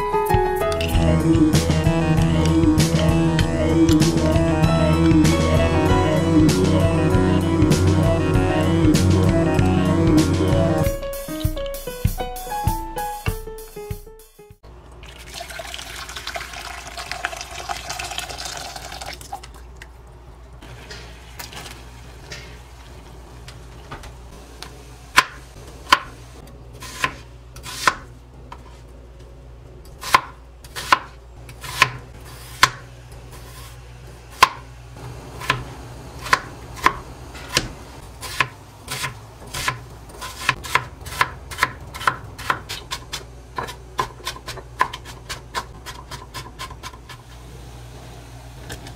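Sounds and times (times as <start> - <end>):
water pouring into pot: 14.9 - 19.8
knife chopping on cutting board: 25.1 - 26.1, 26.8 - 28.1, 30.0 - 32.9, 34.4 - 34.6, 36.2 - 47.2.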